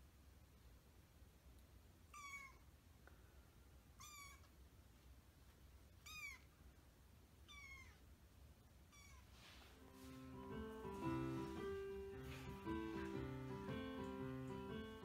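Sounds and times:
kitten meowing: 0:02.1 - 0:02.6, 0:04.0 - 0:04.5, 0:06.0 - 0:06.5, 0:07.4 - 0:08.0, 0:08.9 - 0:09.3.

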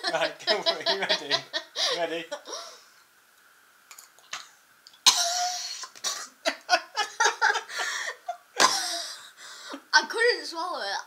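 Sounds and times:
boy coughing and gagging: 0:05.1 - 0:06.7, 0:08.6 - 0:09.1.

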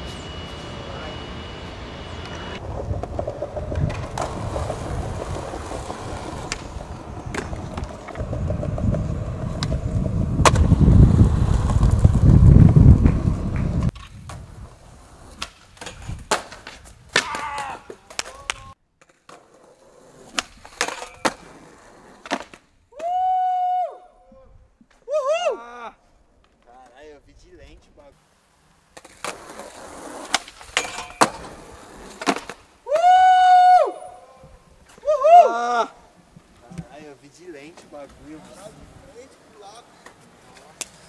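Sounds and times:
skateboard wheels rolling: 0:00.0 - 0:23.8, 0:28.7 - 0:41.0
skateboard clicks and knocks: 0:02.6 - 0:14.5, 0:15.3 - 0:23.1, 0:29.0 - 0:33.2
skateboard tail pops and landings: 0:02.9 - 0:14.6, 0:15.3 - 0:19.6, 0:20.2 - 0:23.2, 0:29.0 - 0:33.2.

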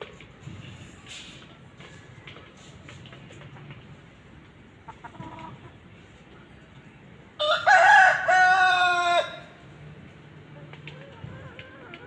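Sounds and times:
hen clucking: 0:04.8 - 0:05.9, 0:10.6 - 0:12.0
rooster crowing: 0:07.4 - 0:09.6.

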